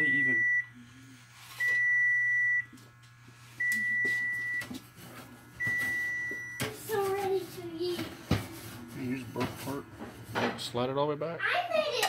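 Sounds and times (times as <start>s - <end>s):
oven timer beeping: 0.0s - 0.8s, 1.6s - 2.8s, 3.6s - 4.8s, 5.6s - 6.8s.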